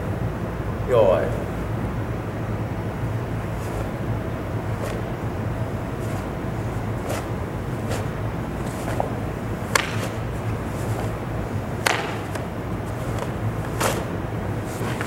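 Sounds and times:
steady low hum: 0.0 - 15.0
uniform cloth snapping: 3.6 - 4.0, 4.6 - 15.0.

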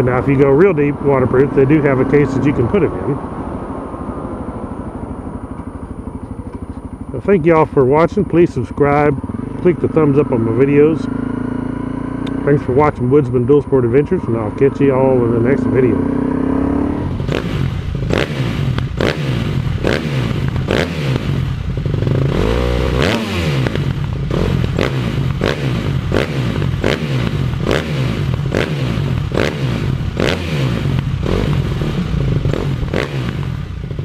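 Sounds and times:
motorcycle engine running: 0.0 - 34.0.

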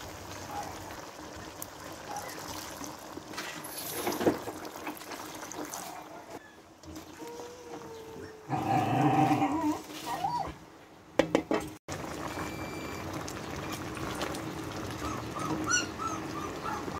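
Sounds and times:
dog whining and yelping: 7.2 - 8.6, 9.4 - 10.6, 15.0 - 16.9.

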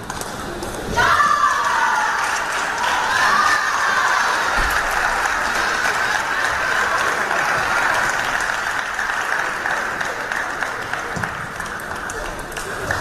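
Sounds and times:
spectators applauding: 0.0 - 13.0.

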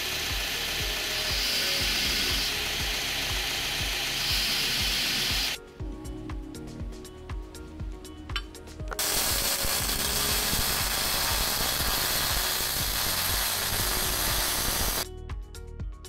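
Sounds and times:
welding arc crackling: 0.0 - 5.6, 8.9 - 15.0.

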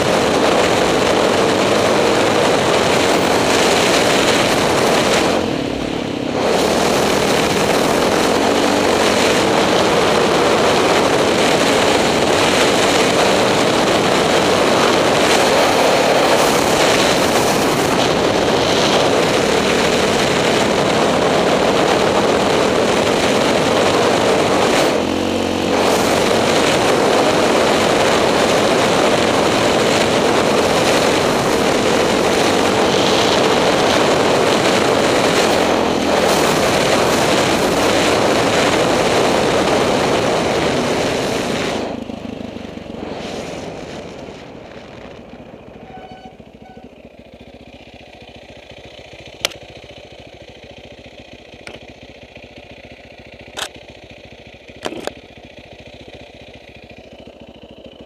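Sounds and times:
motorcycle engine running: 0.0 - 58.0.

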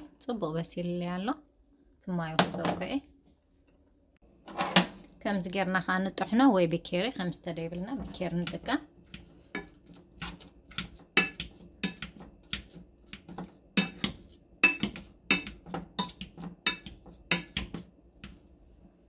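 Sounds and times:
potato masher clanking on saucepan: 8.0 - 18.4.

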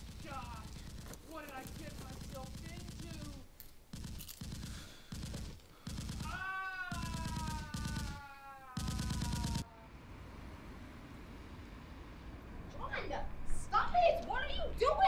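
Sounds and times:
automatic gunfire: 0.0 - 8.2, 8.8 - 9.6
long falling cry: 6.2 - 10.1.

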